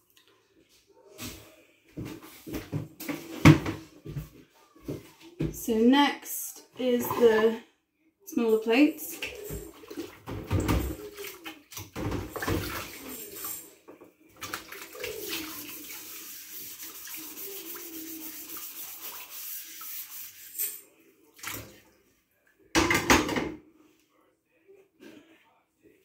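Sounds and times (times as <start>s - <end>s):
water sloshing in a sink: 6.8s - 7.6s, 9.1s - 22.1s.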